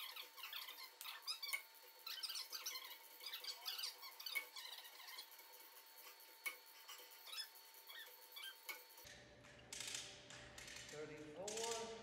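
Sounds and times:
high squeaks and chirps: 0.0 - 9.1.

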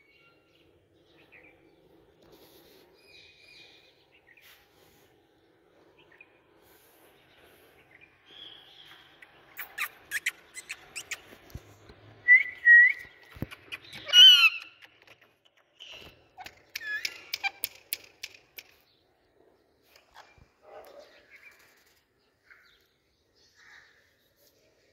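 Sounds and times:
parakeet whistling and chirping: 9.6 - 11.2
sharp clicks: 13.0 - 18.9.

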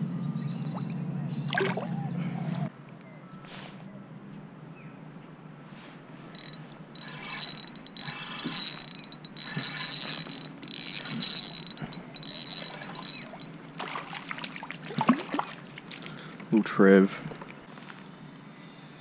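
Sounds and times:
fishing reel whirring: 6.3 - 14.2.

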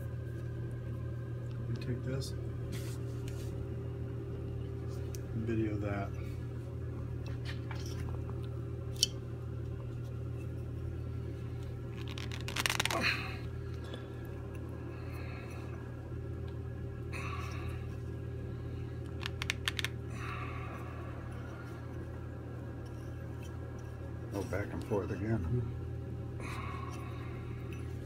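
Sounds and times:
low mechanical hum: 0.0 - 28.0
pump rotor clicks: 19.1 - 20.0.

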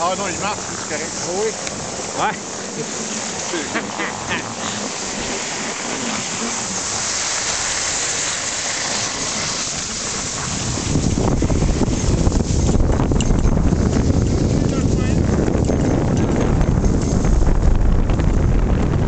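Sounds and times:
skis hissing over snow: 0.0 - 12.6
wind buffeting microphone: 0.0 - 19.0.

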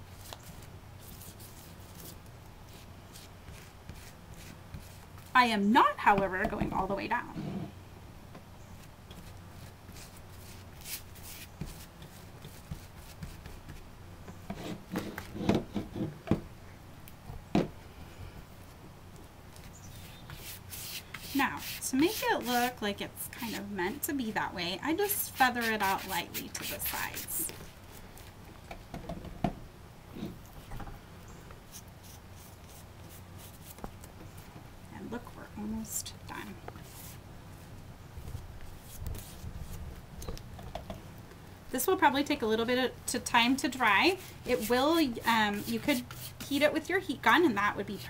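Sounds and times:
paintbrush scrubbing on cardboard: 1.0 - 5.3, 9.2 - 13.8, 19.9 - 24.0, 25.0 - 27.8, 31.7 - 33.8, 36.8 - 37.2, 43.8 - 46.8.

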